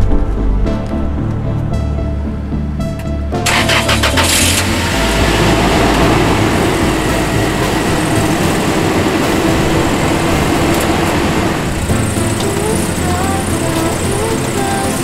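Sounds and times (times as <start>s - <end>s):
car engine idling: 1.7s - 15.0s.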